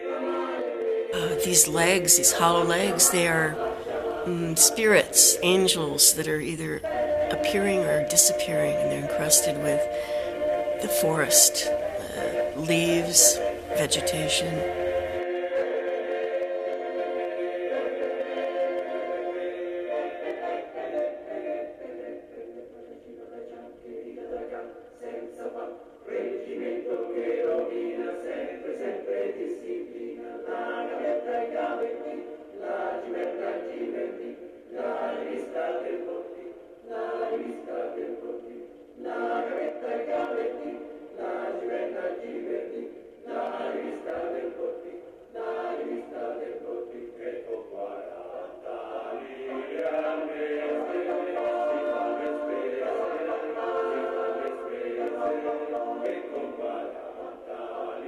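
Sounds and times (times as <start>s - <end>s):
choir singing: 0.0s - 58.0s.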